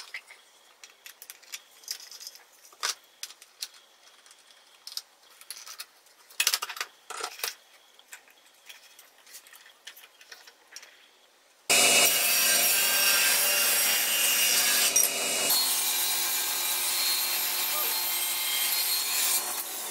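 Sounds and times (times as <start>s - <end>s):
clicks and knocks of parts: 0.0s - 11.0s
table saw cutting wood: 11.7s - 19.9s.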